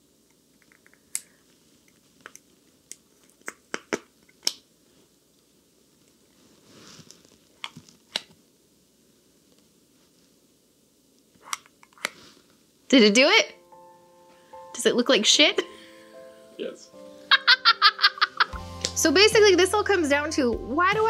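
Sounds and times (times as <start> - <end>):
soft rustle: 1.3 - 2.8, 4.8 - 10.6, 12.0 - 12.9.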